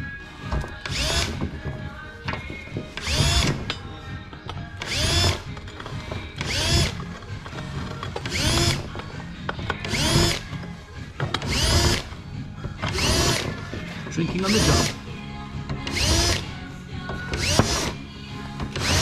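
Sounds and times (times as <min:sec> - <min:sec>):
cordless drill drilling metal: 0:00.8 - 0:01.4, 0:03.0 - 0:03.6, 0:04.8 - 0:05.5, 0:06.3 - 0:07.1, 0:08.2 - 0:08.9, 0:09.8 - 0:10.5, 0:11.3 - 0:12.1, 0:12.8 - 0:13.6, 0:14.4 - 0:15.0, 0:15.8 - 0:16.6, 0:17.3 - 0:18.0, 0:18.7 - 0:19.0.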